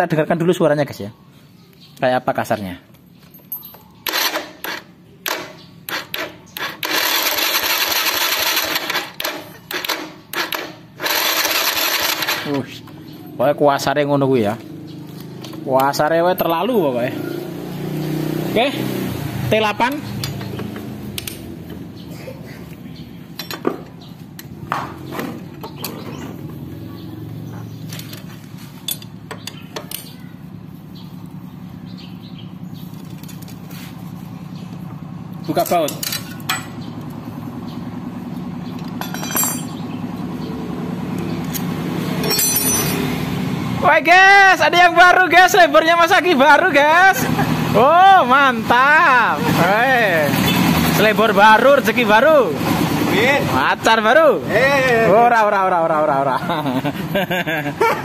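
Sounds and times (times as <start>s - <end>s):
electric starter cranking engine: 4.0s - 12.6s
metallic clinks of wrench on bolts: 28.8s - 30.2s, 35.5s - 36.8s, 38.8s - 39.8s, 42.2s - 43.1s.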